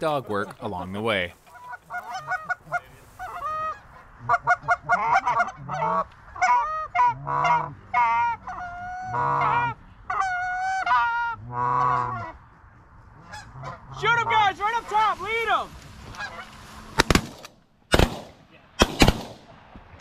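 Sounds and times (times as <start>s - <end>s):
geese clucking: 0.2s - 15.1s, 16.0s - 16.7s
geese honking: 0.6s - 16.7s.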